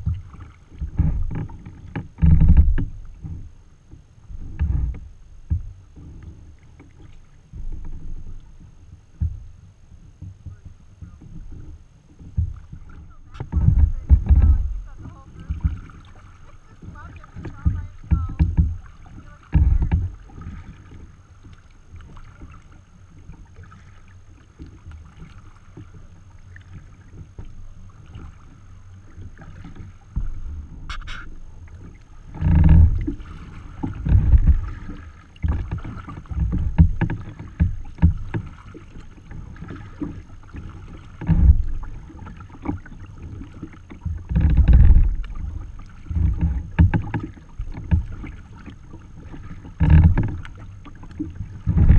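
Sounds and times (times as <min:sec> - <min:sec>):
water slapping against kayak hull: 0:00.0 - 0:51.9
wind on microphone: 0:12.4 - 0:20.8, 0:51.4 - 0:51.9
low thumps: 0:13.3 - 0:15.9, 0:16.8 - 0:20.3.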